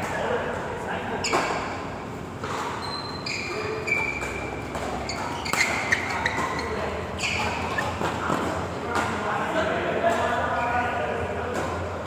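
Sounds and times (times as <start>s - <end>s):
sports hall hum: 0.0s - 12.0s
sports shoes squeaking: 1.2s - 9.2s, 10.2s - 11.0s.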